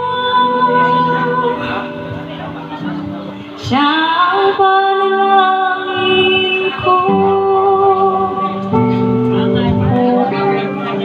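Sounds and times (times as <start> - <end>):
woman singing through a pa: 0.0 - 2.2, 3.6 - 8.8
live band playing: 0.0 - 11.0.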